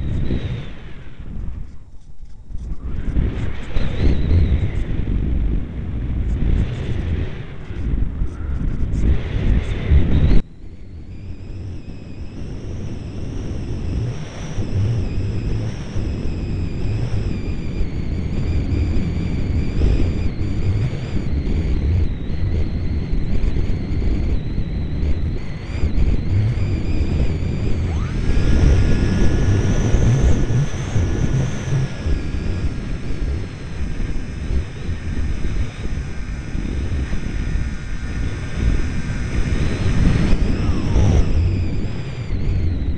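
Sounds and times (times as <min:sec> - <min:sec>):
wind rumble on microphone: 0:00.0 - 0:42.9
model airplane motor whining: 0:06.1 - 0:42.9
rising tone: 0:24.8 - 0:42.9.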